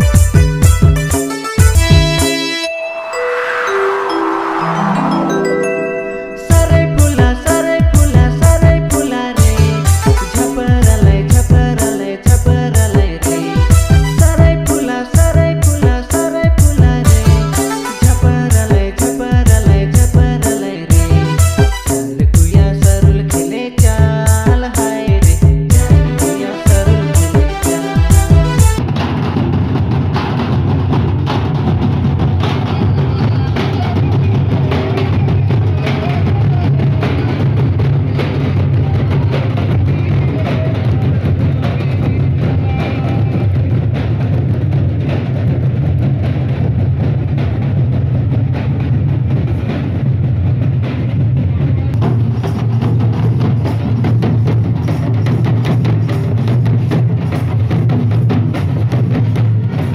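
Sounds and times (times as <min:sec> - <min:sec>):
barrel drums beating: 0:00.0 - 0:02.6, 0:06.5 - 0:31.8
drums beating dense rhythm: 0:00.0 - 0:02.7, 0:06.5 - 0:59.9.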